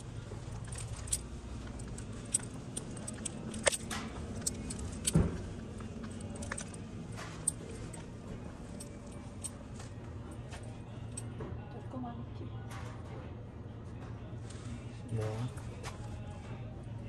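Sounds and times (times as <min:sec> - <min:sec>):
metallic clinks and jingles: 0:00.0 - 0:11.4
low steady hum: 0:00.0 - 0:17.0.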